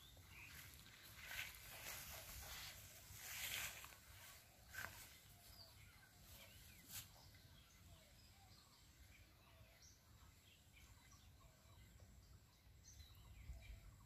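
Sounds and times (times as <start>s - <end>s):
faint bird chirps: 0.0s - 14.0s
soft rustles: 0.4s - 5.6s.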